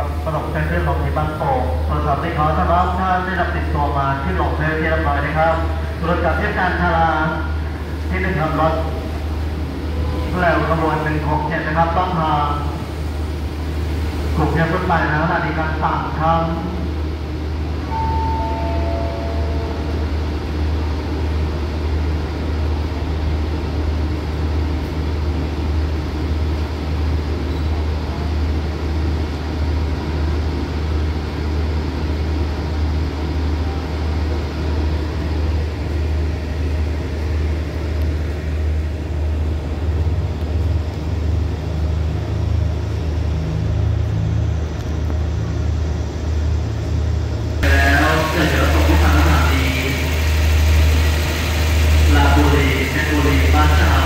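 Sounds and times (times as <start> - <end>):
brief high tone: 17.9 - 20.0
diesel engines idling: 35.1 - 54.0.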